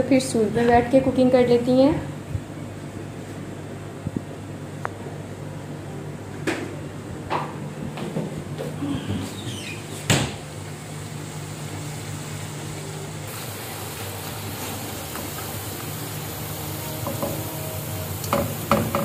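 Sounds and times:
food sizzling in hot oil: 0:13.3 - 0:19.0.

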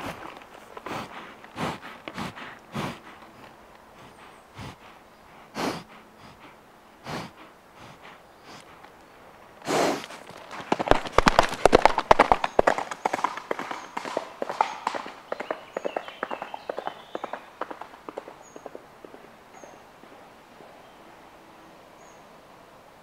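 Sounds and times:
galloping hoofbeats: 0:00.0 - 0:05.0, 0:09.6 - 0:20.2
horse breathing out: 0:00.0 - 0:08.9, 0:09.6 - 0:11.7
horse snorting: 0:00.0 - 0:08.9, 0:09.6 - 0:11.8.

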